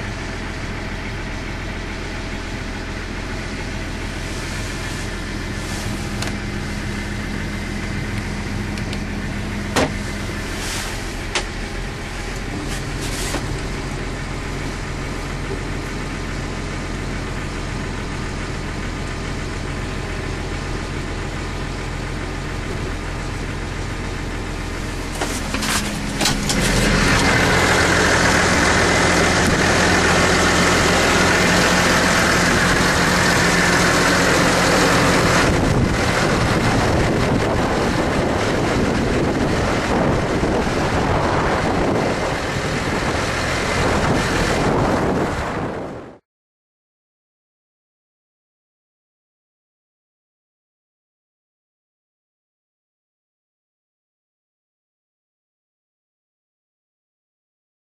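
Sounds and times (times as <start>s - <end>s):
tractor diesel engine idling: 0.0s - 46.2s
wind on microphone: 35.2s - 46.2s.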